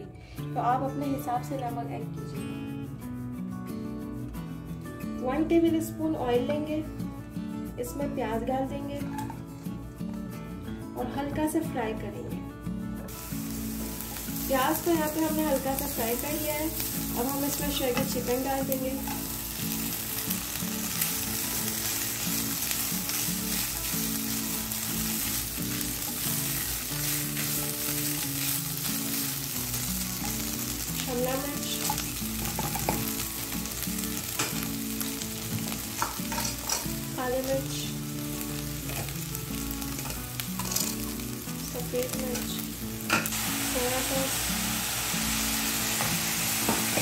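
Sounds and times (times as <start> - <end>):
food sizzling in a pan: 13.0 - 47.0
spatula scraping and tapping pan: 35.9 - 36.9.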